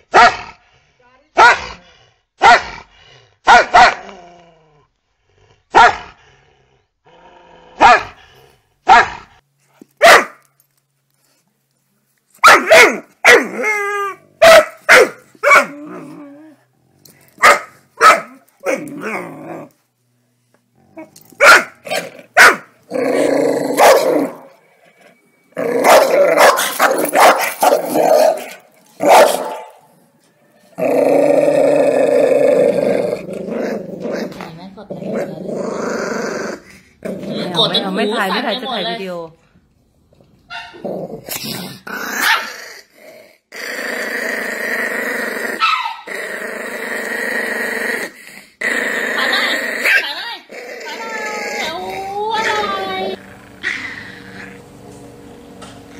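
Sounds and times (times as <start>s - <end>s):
dogs barking: 3.4s - 4.0s, 7.8s - 8.2s, 8.8s - 9.3s, 10.0s - 10.4s, 12.4s - 13.5s, 14.4s - 15.8s, 17.4s - 18.8s, 21.4s - 22.7s, 23.7s - 24.5s, 25.8s - 29.9s, 45.6s - 46.1s
dogs growling: 15.6s - 17.4s, 20.7s - 24.6s, 30.8s - 37.8s, 40.8s - 54.7s.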